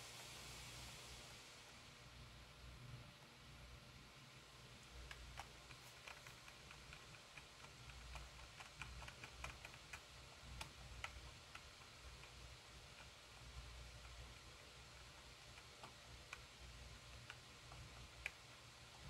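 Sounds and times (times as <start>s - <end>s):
low steady hum: 0.0s - 19.0s
faint irregular clicking: 4.8s - 19.0s.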